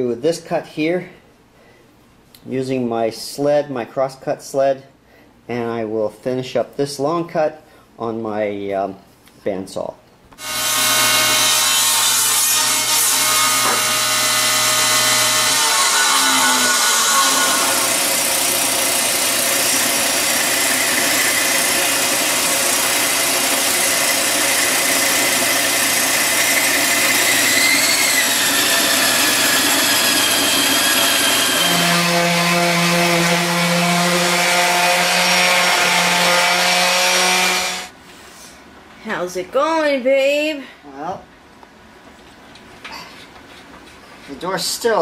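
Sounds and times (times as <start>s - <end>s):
bandsaw cutting wood: 10.4s - 37.9s
electric sander humming: 10.4s - 37.9s.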